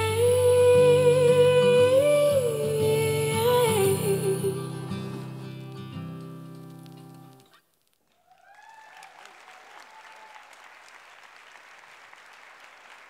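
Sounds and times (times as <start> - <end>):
audience applauding: 8.0 - 13.0
person cheering: 8.2 - 10.7.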